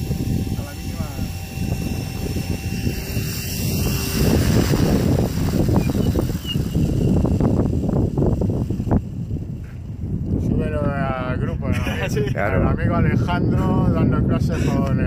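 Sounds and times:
model helicopter rotor whirring: 0.0s - 12.0s
wind rush on microphone: 0.0s - 15.0s.

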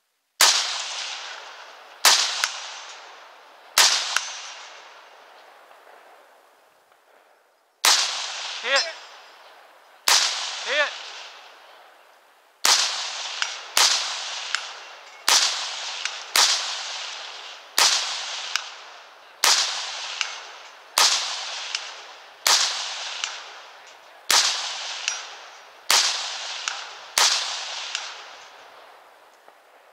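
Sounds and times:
rifle shots echoing: 0.4s - 7.1s, 7.8s - 11.9s, 12.6s - 29.9s
bullets pinging on steel targets: 3.8s - 5.0s, 7.8s - 9.5s, 13.4s - 16.6s, 19.4s - 28.7s.

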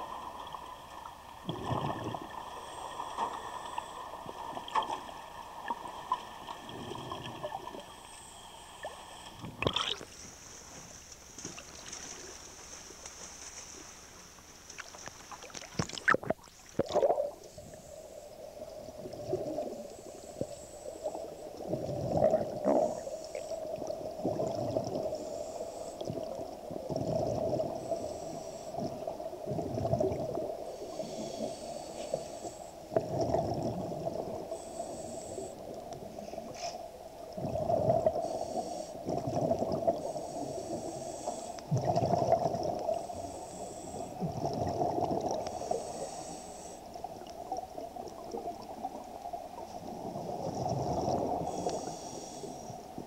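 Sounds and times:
underwater exhaled bubbles gurgling: 0.0s - 10.1s, 15.4s - 53.0s
steady hum: 0.0s - 53.0s
hiss: 25.0s - 26.2s, 27.7s - 28.8s, 30.6s - 32.9s, 34.4s - 37.0s, 38.1s - 39.0s, 40.1s - 41.7s, 42.8s - 44.3s, 45.4s - 47.0s, 51.4s - 53.0s.

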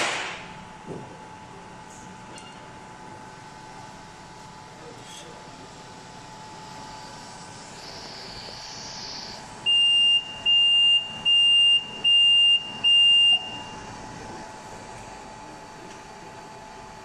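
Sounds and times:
steady machine hum: 0.0s - 17.0s
high-pitched buzzer beeps: 7.7s - 13.8s.

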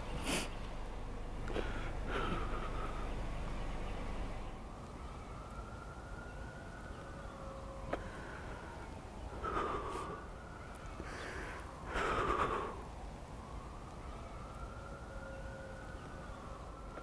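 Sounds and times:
distant siren wailing: 0.0s - 17.0s
gasping sobs: 1.4s - 3.2s, 9.3s - 10.3s, 11.0s - 12.9s
young man crying: 1.5s - 3.0s.

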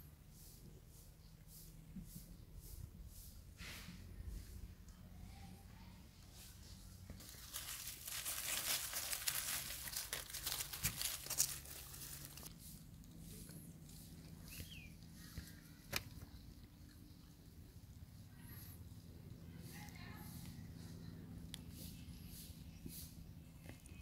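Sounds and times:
dry leaves crackling and rustling: 6.6s - 14.9s.

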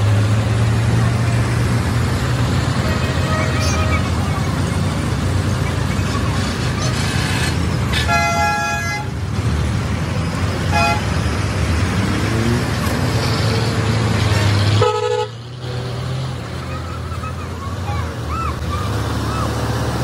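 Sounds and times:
diesel engine hum: 0.0s - 20.0s
vehicle horn honking: 2.8s - 4.0s, 7.9s - 9.2s, 10.7s - 11.1s, 14.8s - 15.4s.

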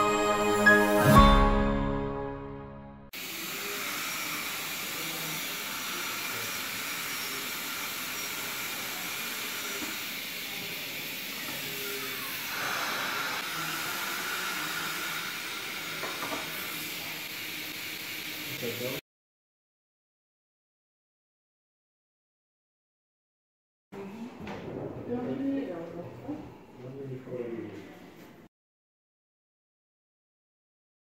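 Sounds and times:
dental suction hissing: 3.2s - 19.0s.

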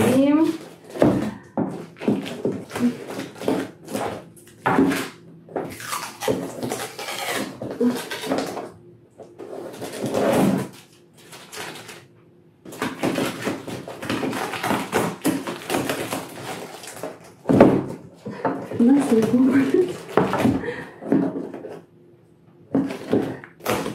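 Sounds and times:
knife scraping packing tape: 4.9s - 8.6s, 12.8s - 17.2s.

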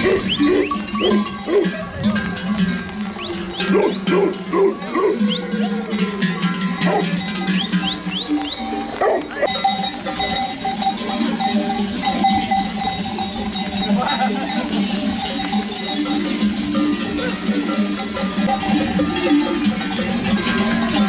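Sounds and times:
sheep bleating: 0.0s - 1.9s, 19.9s - 21.0s
livestock bells clanking: 0.0s - 21.0s.

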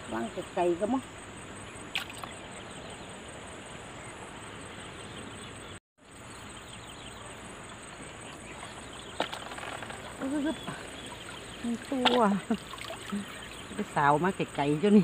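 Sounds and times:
faint insect drone: 0.0s - 15.0s
outdoor background hiss: 0.0s - 15.0s.

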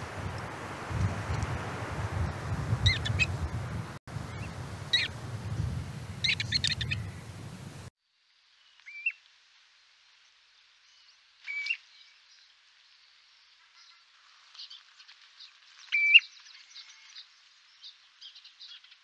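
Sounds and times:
wind rumble: 0.0s - 7.9s
birds chattering calls: 2.2s - 7.9s
single bird calls: 2.8s - 3.4s, 4.3s - 5.2s, 6.1s - 7.8s.

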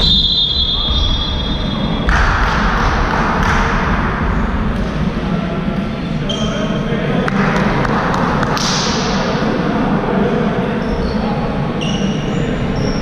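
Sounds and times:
referee's whistle blast: 0.0s - 2.1s.

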